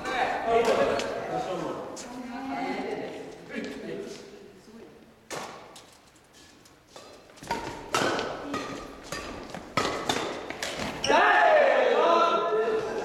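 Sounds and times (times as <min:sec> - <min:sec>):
rackets hitting shuttlecock: 0:00.0 - 0:01.2, 0:05.3 - 0:05.9, 0:06.9 - 0:11.1.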